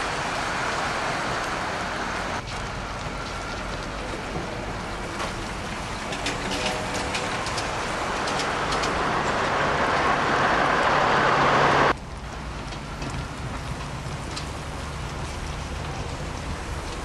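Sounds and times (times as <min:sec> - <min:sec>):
vehicle passing close: 0:06.6 - 0:12.0.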